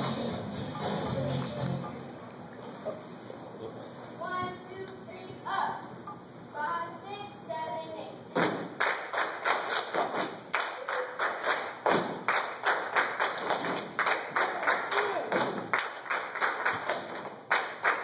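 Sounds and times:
stomps and hand claps: 8.4s - 10.8s, 11.6s - 18.0s.

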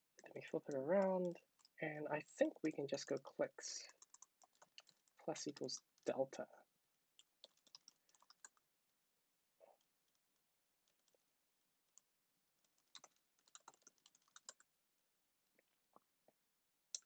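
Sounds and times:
computer keyboard typing: 3.1s - 6.1s, 7.2s - 8.6s, 10.8s - 11.2s, 12.6s - 14.7s.

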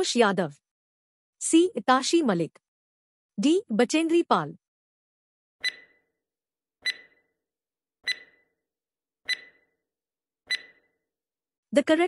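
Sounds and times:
timer ticks with ringing beeps: 5.6s - 6.2s, 6.8s - 7.4s, 8.0s - 8.6s, 9.3s - 9.8s, 10.5s - 11.0s.

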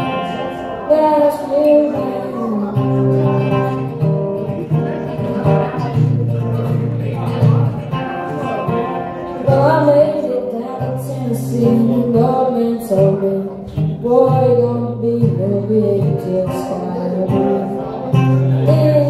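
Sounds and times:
person singing: 0.0s - 4.0s, 9.4s - 19.0s
strummed acoustic guitar: 0.0s - 19.0s.

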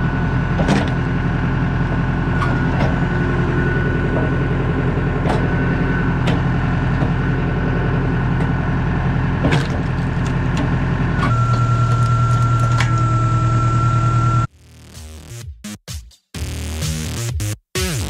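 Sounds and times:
high whine: 0.0s - 14.5s
tractor engine running: 0.0s - 14.5s
logs cracking and knocking: 9.4s - 13.1s.

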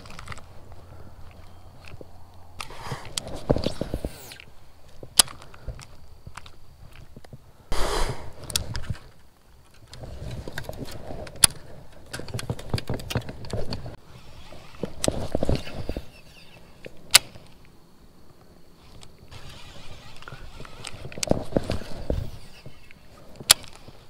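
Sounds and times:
small ticks and rustle: 0.0s - 7.7s, 8.4s - 24.0s
short rushing noise: 7.7s - 8.4s
fishing reel clicking and winding: 18.8s - 24.0s.

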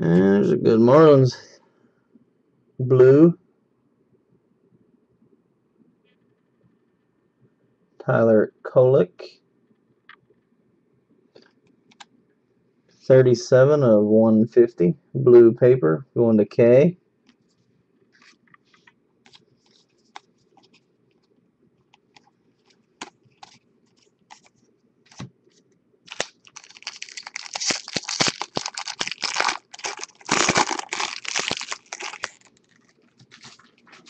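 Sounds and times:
foil wrapper tearing and crinkling: 26.1s - 34.0s.

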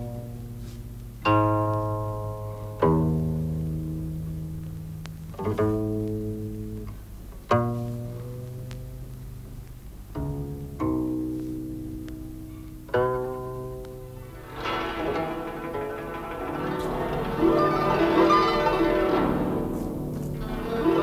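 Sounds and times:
plucked zither notes: 12.9s - 21.0s.

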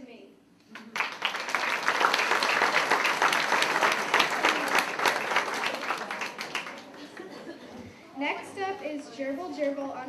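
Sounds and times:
audience applauding: 0.8s - 7.4s.

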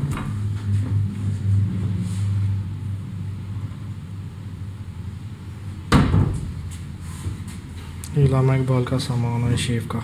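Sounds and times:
low steady hum: 0.0s - 10.0s
sharp knocks: 5.9s - 6.5s.

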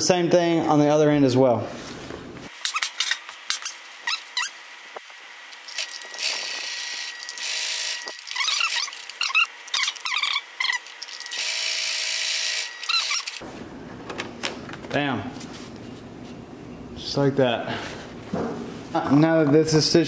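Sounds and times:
high squeaks and clicks: 2.5s - 4.6s, 5.6s - 11.4s, 12.8s - 13.4s.

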